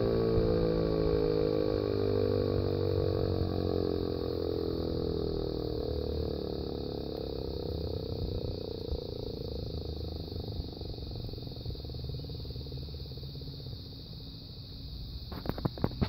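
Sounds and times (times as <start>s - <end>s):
warning siren winding down: 0.0s - 12.0s.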